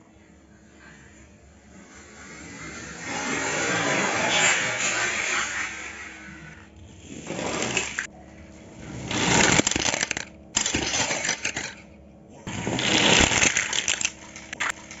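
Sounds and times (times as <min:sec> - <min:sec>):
toy car wheels rattling on table: 0:09.1 - 0:11.8, 0:12.5 - 0:15.0.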